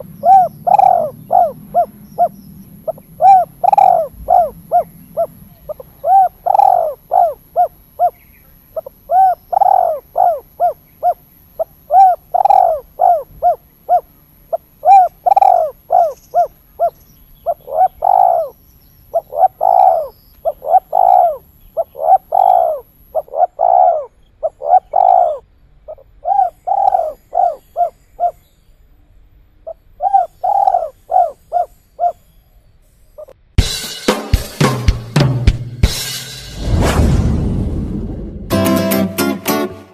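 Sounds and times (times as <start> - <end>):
dove cooing: 0.0 - 8.2, 8.8 - 28.5, 29.7 - 32.2.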